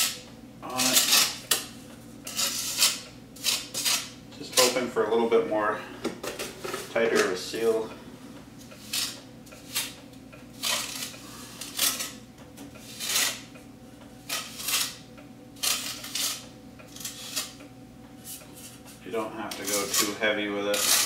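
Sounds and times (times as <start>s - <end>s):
trowel scraping mortar: 2.3s - 4.1s, 10.6s - 12.1s, 12.8s - 13.4s, 14.3s - 15.0s, 15.6s - 17.6s, 19.5s - 21.0s.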